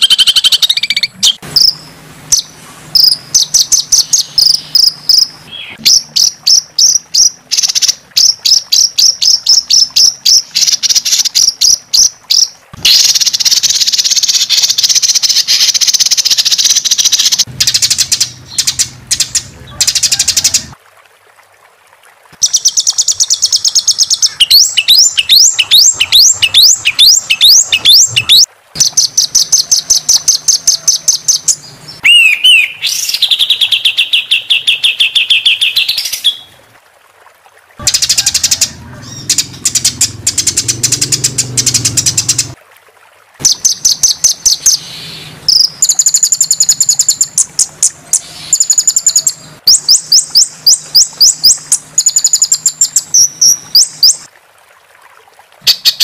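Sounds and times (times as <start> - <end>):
buzzing bird trill: 0.0 - 20.7, 43.4 - 54.2.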